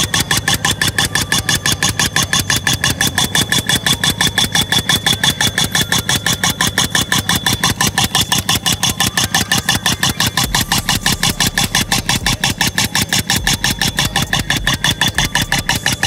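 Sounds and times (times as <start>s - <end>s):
pneumatic tool pounding soil: 0.0s - 16.0s
steady high whine: 0.0s - 16.0s.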